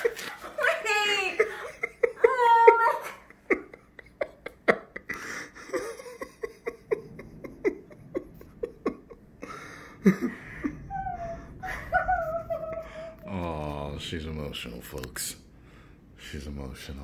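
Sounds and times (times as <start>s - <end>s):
woman sobbing: 0.0s - 13.3s.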